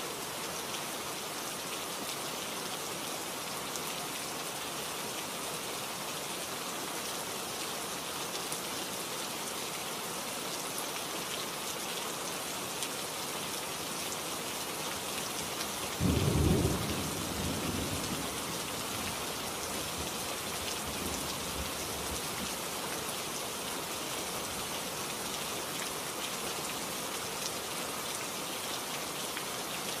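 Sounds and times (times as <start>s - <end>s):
rain hiss: 0.0s - 30.0s
thunder rumbling: 16.0s - 18.4s.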